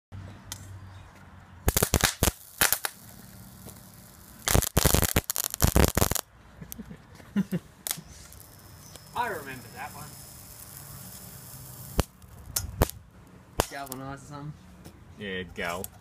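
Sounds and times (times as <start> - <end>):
electrical arcing crackling: 1.6 - 6.3, 7.8 - 14.0.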